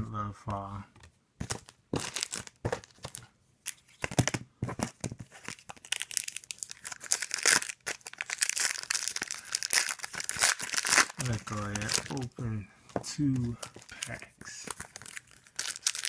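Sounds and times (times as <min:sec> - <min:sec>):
foil wrappers crinkling: 0:01.5 - 0:04.4, 0:05.2 - 0:12.3, 0:13.3 - 0:16.0.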